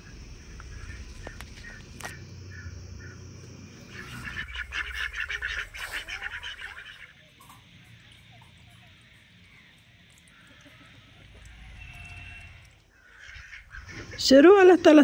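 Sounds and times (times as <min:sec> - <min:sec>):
low steady rumble: 0:00.0 - 0:07.0
ducks quacking: 0:00.0 - 0:15.0.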